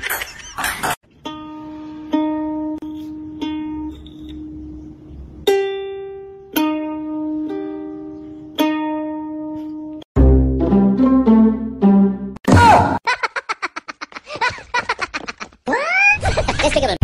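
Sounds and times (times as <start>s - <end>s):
ukulele strings plucked: 1.2s - 12.4s.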